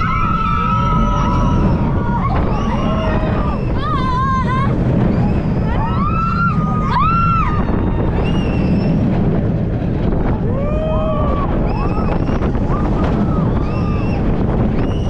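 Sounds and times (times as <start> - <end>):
riders screaming: 0.0 - 4.5
roller coaster train rumble: 0.0 - 15.0
wind rushing over microphone: 0.0 - 15.0.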